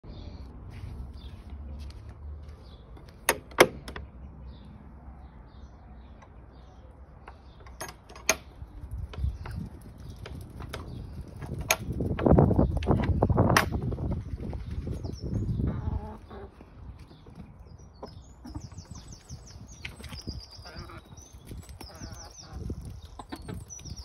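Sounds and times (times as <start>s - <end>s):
small birds chirping: 0.0s - 24.0s
sharp clicks and knocks: 3.0s - 4.1s, 7.2s - 13.9s.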